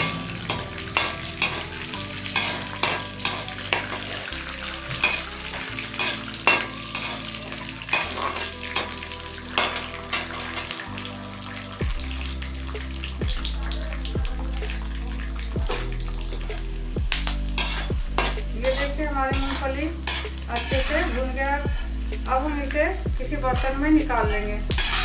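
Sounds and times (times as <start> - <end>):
spoon scraping metal pan: 0.0 - 10.8, 17.1 - 21.9, 24.7 - 25.0
peanuts sizzling in oil: 0.0 - 25.0.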